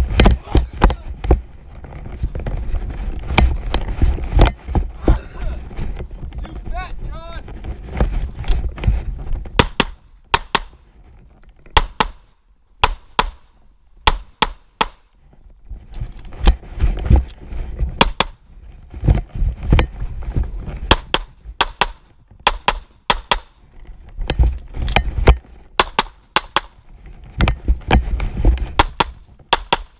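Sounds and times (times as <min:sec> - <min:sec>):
low rumbling: 0:00.0 - 0:11.8.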